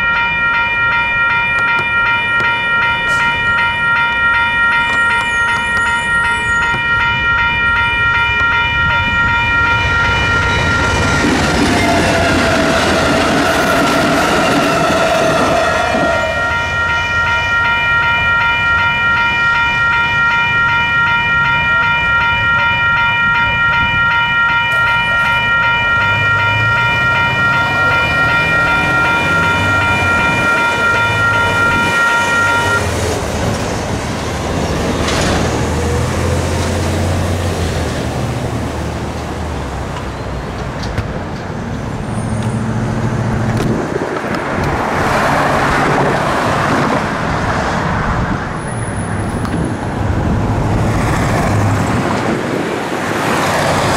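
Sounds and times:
electronic crossing bells ringing: 0:00.0 - 0:35.2
cars driving past: 0:25.6 - 0:53.9.

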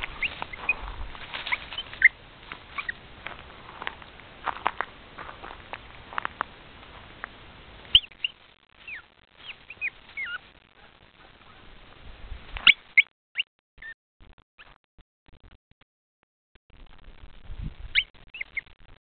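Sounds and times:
puppy whimpering: 0:08.8 - 0:11.7.

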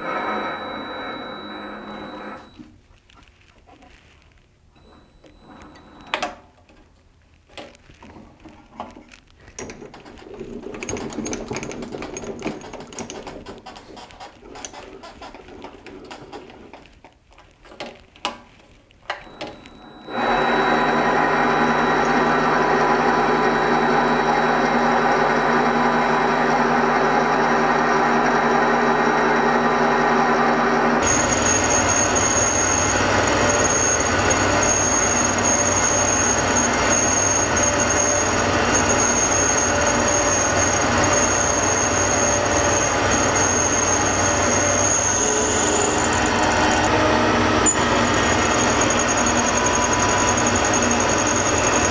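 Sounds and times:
lathe humming and whining: 0:00.0 - 0:02.6, 0:19.2 - 0:51.9
clicks and knocks: 0:04.8 - 0:19.8.

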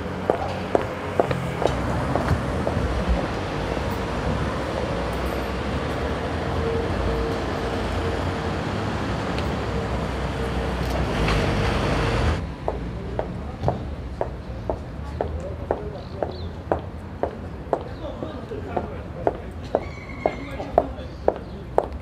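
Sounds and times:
street traffic rumble: 0:00.0 - 0:22.0
footsteps on pavement: 0:00.1 - 0:04.1, 0:12.6 - 0:22.0.

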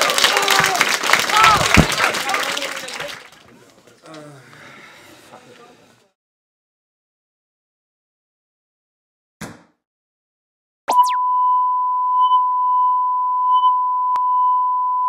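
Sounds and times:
steady test tone beep: 0:10.9 - 0:15.0.

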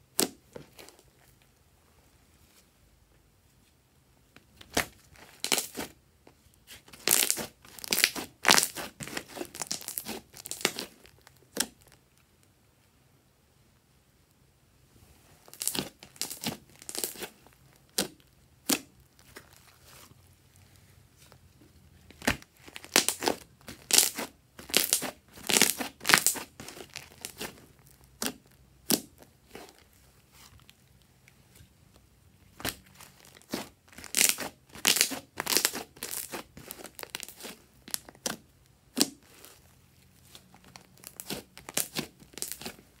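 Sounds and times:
slime crackling and popping: 0:04.6 - 0:05.9, 0:06.7 - 0:12.0, 0:15.4 - 0:20.1, 0:22.1 - 0:29.9, 0:32.5 - 0:39.6, 0:40.2 - 0:43.0.

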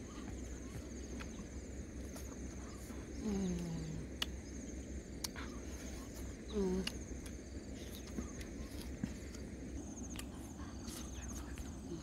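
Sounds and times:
insects trilling: 0:00.0 - 0:12.0
person humming: 0:03.2 - 0:04.1, 0:06.5 - 0:07.0.

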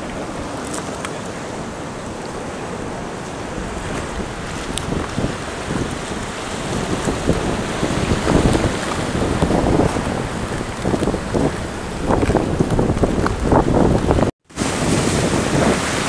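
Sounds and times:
surf breaking over rocks: 0:00.0 - 0:16.0
wind buffeting microphone: 0:00.0 - 0:16.0.

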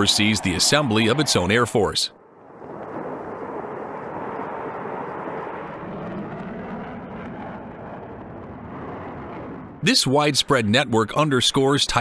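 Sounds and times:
fighter jet taking off: 0:00.0 - 0:12.0.

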